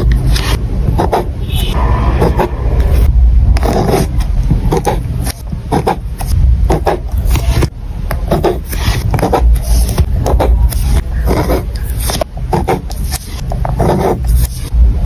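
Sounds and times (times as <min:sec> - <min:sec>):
pen scratching on paper: 0:00.0 - 0:02.5, 0:03.6 - 0:07.7, 0:08.3 - 0:14.7
low rumble: 0:00.7 - 0:08.0, 0:14.7 - 0:15.0.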